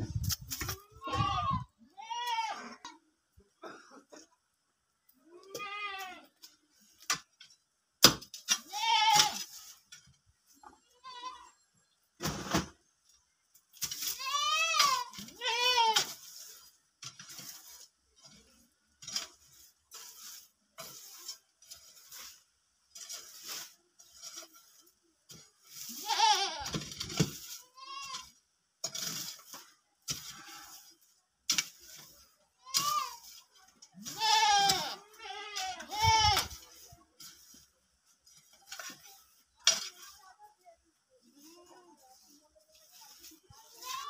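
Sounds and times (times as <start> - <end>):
hoe striking and scraping soil: 0.0 - 2.9, 5.4 - 10.4, 12.2 - 40.6
goats bleating: 34.0 - 36.5.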